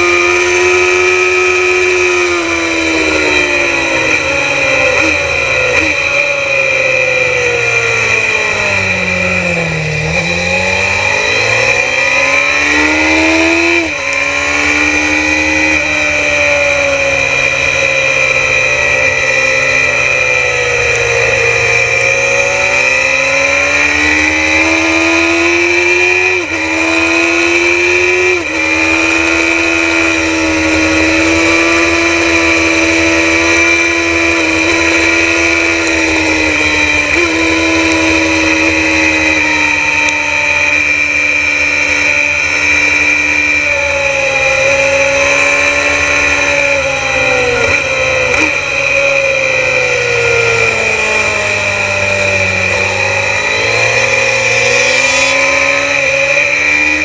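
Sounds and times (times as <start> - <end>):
racing motorcycle engine: 0.0 - 57.0.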